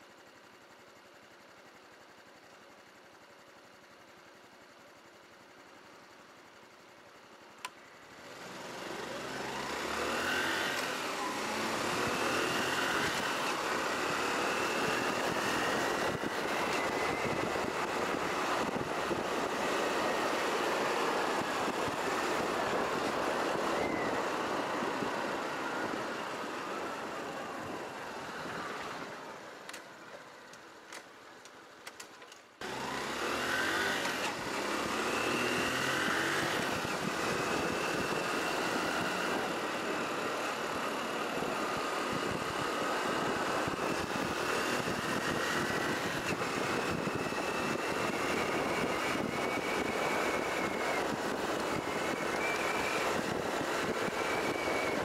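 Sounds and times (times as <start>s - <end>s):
wind and road noise: 7.2s - 55.0s
motorcycle engine revving: 8.2s - 29.2s, 32.6s - 55.0s.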